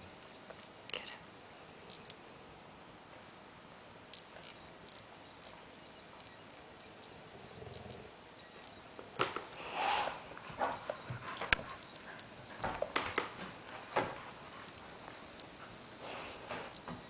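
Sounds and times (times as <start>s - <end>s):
dogs scuffling: 9.2s - 17.0s
dog sniff: 9.6s - 12.6s, 16.0s - 16.6s.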